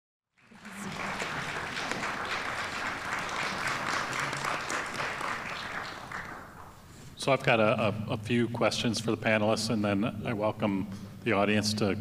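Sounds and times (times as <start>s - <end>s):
audience applauding: 0.3s - 6.9s.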